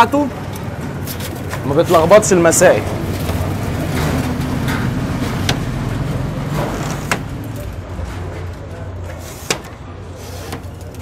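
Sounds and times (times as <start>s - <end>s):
low rumble of passing vehicle: 0.3s - 8.9s
clicks and knocks of cage doors: 2.9s - 7.5s.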